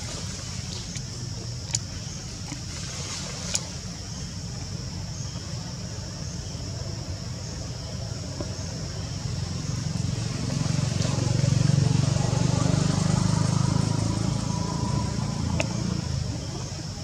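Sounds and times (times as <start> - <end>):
steady high-pitched hiss: 0.0 - 17.0
vehicle engine rumble passing: 8.4 - 17.0.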